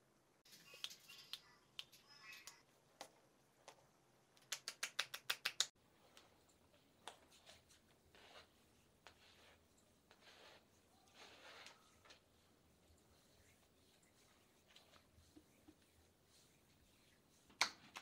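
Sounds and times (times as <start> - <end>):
sharp slaps on skin: 4.4 - 5.7
hands rubbing and patting skin: 4.4 - 6.3, 6.9 - 18.0.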